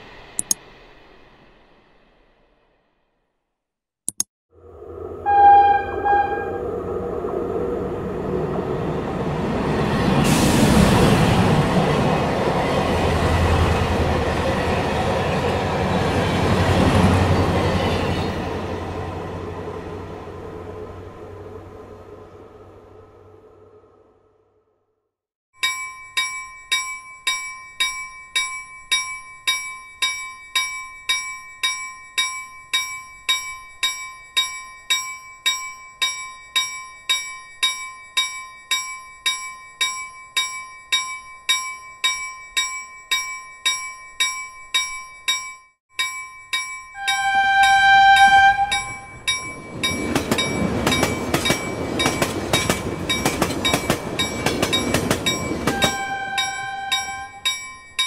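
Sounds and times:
two-tone electronic chime dinging: 25.6 - 52.2
sustained chime: 44.7 - 52.3, 53.1 - 58.0.

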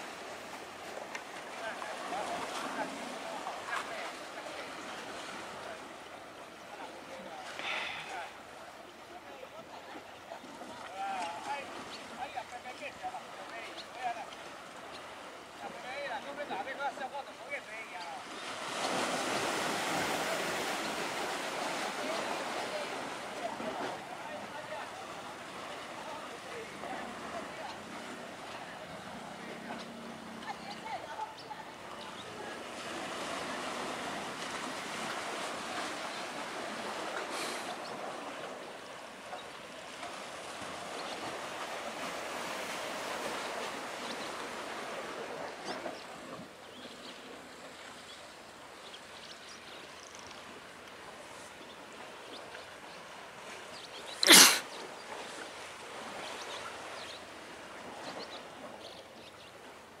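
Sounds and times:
sea surf washing against concrete: 0.0 - 47.5.

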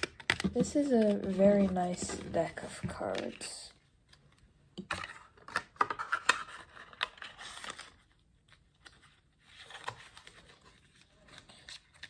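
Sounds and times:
playing cards snapping and rustling: 0.0 - 1.4.

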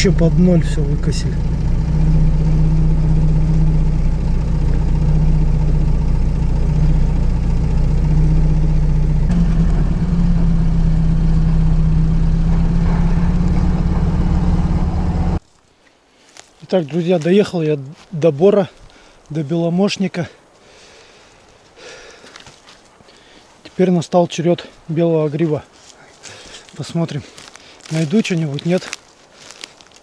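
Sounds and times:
car engine and road noise: 0.0 - 15.4.

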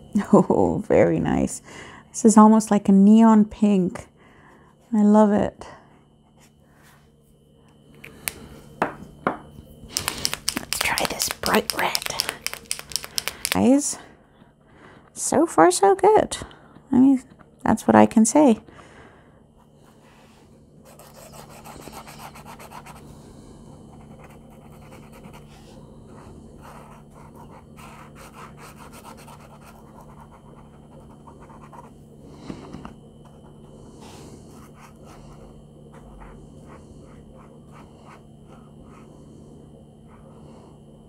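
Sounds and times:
steady low hum: 0.0 - 41.0
pen nib scrubbing on paper: 20.9 - 23.0, 23.9 - 25.8, 26.6 - 31.9.

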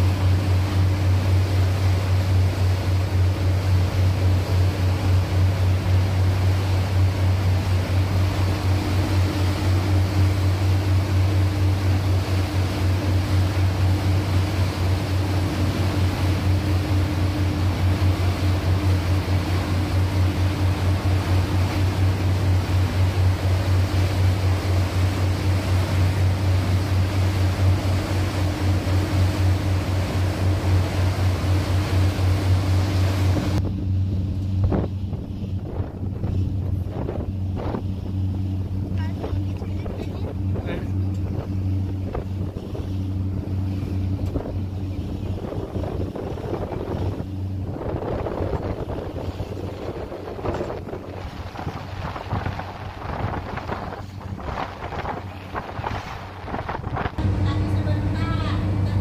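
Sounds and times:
boat engine droning: 0.0 - 59.0
water rushing in wake: 0.0 - 59.0
wind on microphone: 34.5 - 57.3.

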